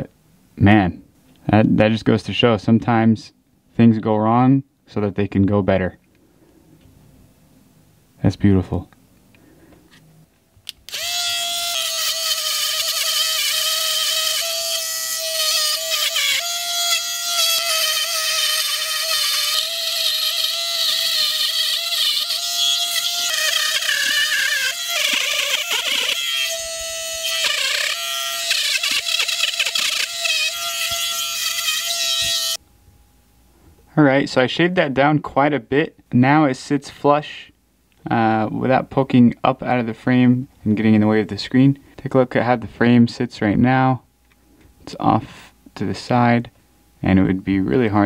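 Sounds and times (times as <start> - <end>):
metal grinding rasp: 10.9 - 32.6
rotary grinder whining: 10.9 - 32.6.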